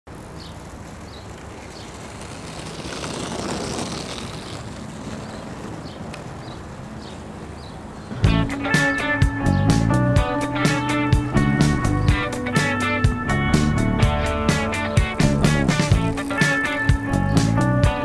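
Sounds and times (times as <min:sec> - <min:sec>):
steady rushing noise: 0:00.1 - 0:08.6.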